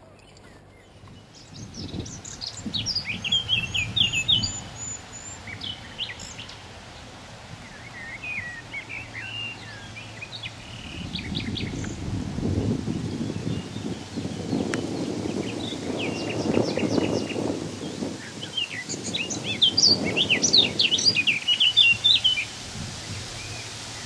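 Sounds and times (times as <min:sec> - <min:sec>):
small birds chirping: 0:00.0 - 0:24.0
low rushing background: 0:18.5 - 0:24.0.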